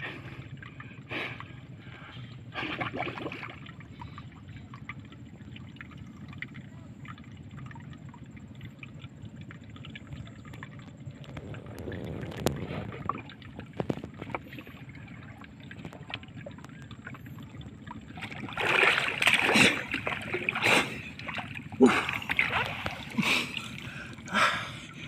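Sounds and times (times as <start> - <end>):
water lapping around a boat: 0.0 - 25.0
person splashing into water: 18.2 - 24.4.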